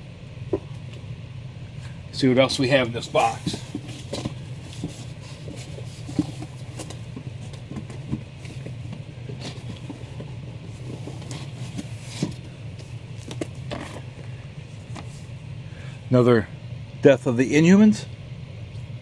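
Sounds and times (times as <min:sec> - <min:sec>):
steady low hum: 0:00.0 - 0:19.0
comic books and cardboard rustling: 0:02.3 - 0:15.4.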